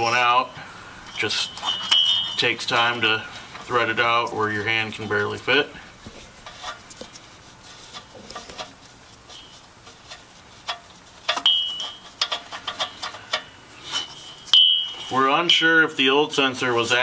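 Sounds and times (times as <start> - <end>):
metallic clicks and scraping: 7.8 - 15.2.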